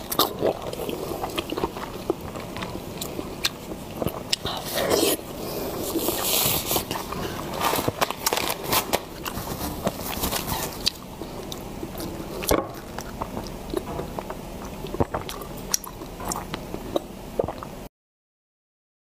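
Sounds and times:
wet mouth clicks and gulps: 10.9s - 17.7s.

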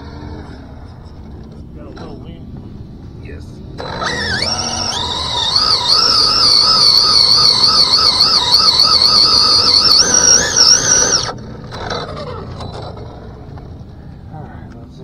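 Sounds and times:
rc car drivetrain whine: 3.8s - 14.0s.

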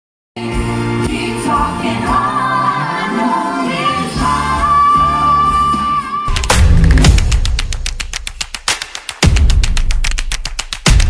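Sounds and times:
pop song with female vocals: 0.4s - 6.4s.

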